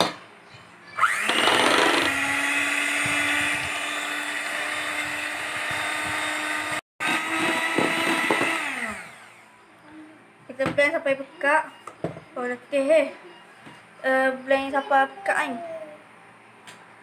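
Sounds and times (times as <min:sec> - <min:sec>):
electric hand mixer whirring: 0:01.0 - 0:09.5.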